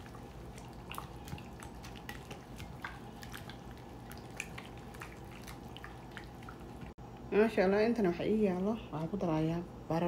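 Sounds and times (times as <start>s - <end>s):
wet squelches of chicken in marinade: 0.0s - 7.0s.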